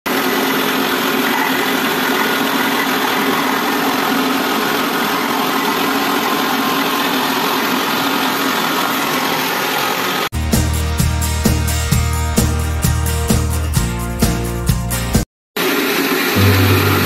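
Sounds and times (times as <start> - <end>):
rice pouring through machine: 0.1 - 10.3, 15.6 - 16.7
motor hum: 16.4 - 17.0.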